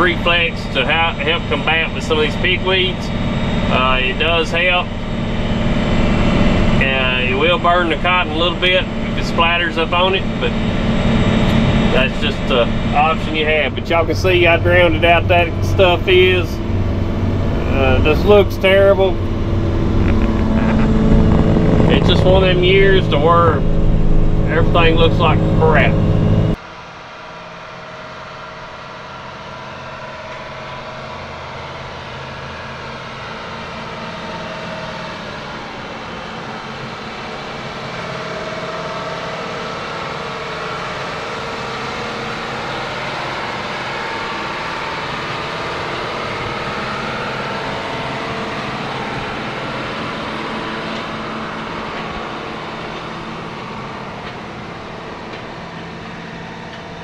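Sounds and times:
road noise: 0:00.0 - 0:26.6, 0:41.8 - 0:57.0
vehicle engine humming: 0:00.0 - 0:26.6, 0:29.8 - 0:57.0.

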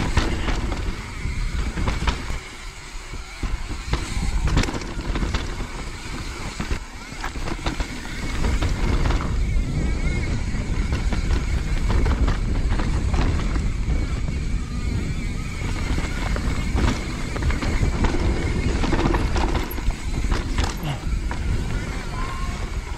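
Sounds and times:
bike clattering knocks: 0:00.0 - 0:02.6, 0:15.8 - 0:22.9
bike low rumble: 0:00.0 - 0:22.9.

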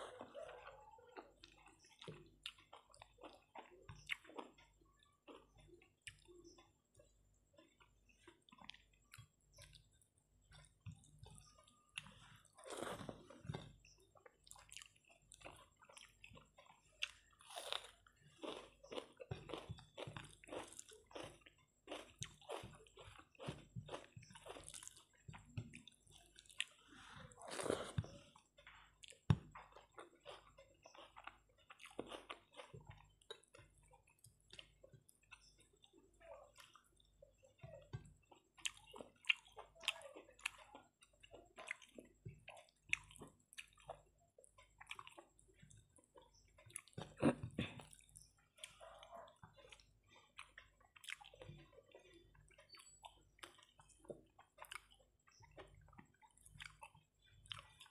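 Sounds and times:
person chewing food: 0:00.0 - 0:57.9.

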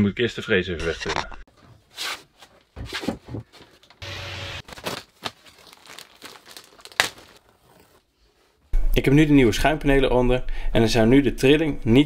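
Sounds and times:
foam and plastic crinkling: 0:04.6 - 0:08.0.

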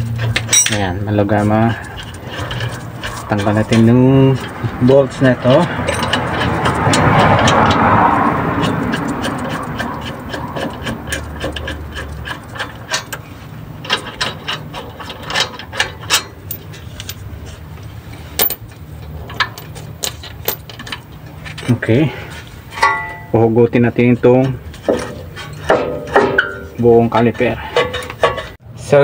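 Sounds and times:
metallic clinks: 0:18.4 - 0:18.7, 0:19.5 - 0:20.8.

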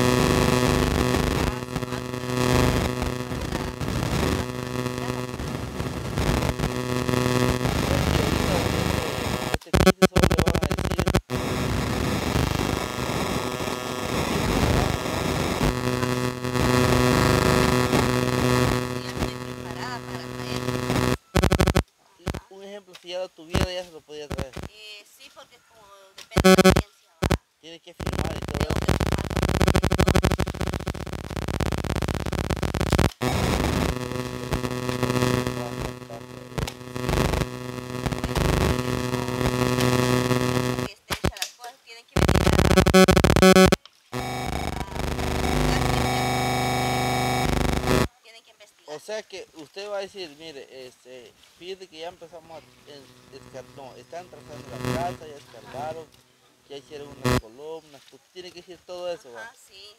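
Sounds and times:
buzzy hum: 0:00.0 - 0:22.4, 0:26.4 - 0:27.4, 0:28.0 - 0:40.9, 0:42.2 - 0:48.1, 0:52.0 - 0:57.4
harsh garbled static: 0:00.0 - 0:22.6, 0:23.2 - 0:24.8, 0:26.3 - 0:41.4, 0:42.2 - 0:48.1, 0:49.4 - 0:58.5.

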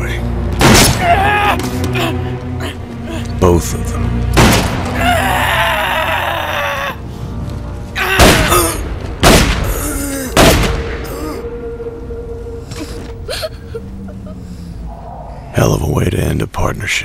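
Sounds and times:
brooding music score: 0:00.0 - 0:17.0
wavering cry of pain: 0:01.0 - 0:03.2, 0:04.9 - 0:07.0, 0:08.0 - 0:08.8, 0:09.7 - 0:10.4
gunshots: 0:04.4 - 0:04.9, 0:09.2 - 0:09.7, 0:10.4 - 0:10.9.

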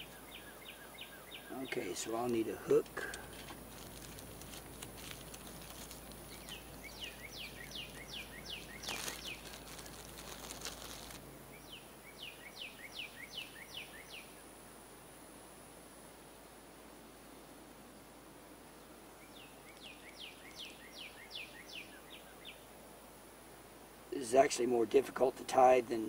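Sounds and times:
small items clicking and rustling: 0:02.6 - 0:06.8, 0:07.5 - 0:11.2.

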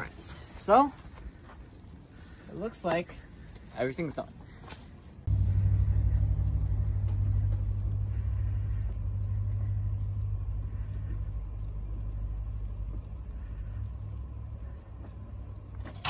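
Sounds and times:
car engine idling: 0:05.3 - 0:16.0.

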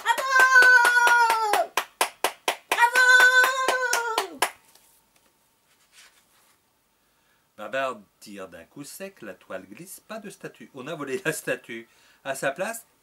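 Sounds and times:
sharp hand claps: 0:00.0 - 0:04.6.

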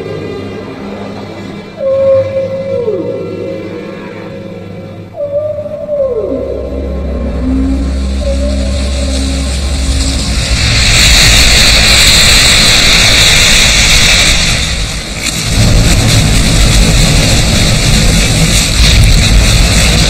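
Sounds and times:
heavy whale splash: 0:07.2 - 0:20.0.

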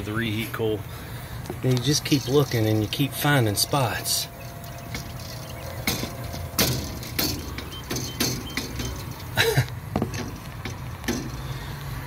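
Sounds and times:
steady low hum: 0:00.0 - 0:12.0
copper tubing clicking and knocking: 0:04.5 - 0:11.6.

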